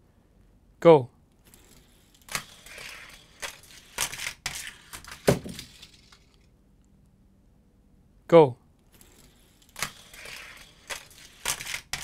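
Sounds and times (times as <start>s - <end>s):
toy cars clacking on plastic track: 2.2s - 6.5s, 9.6s - 12.0s.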